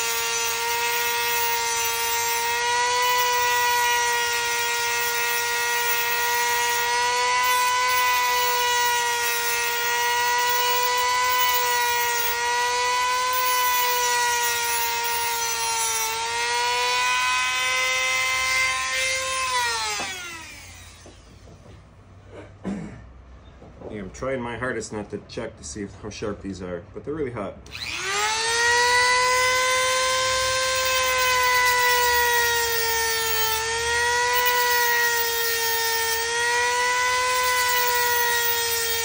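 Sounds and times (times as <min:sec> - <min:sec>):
rotary tool cutting metal: 0:00.0 - 0:21.5, 0:27.7 - 0:39.0.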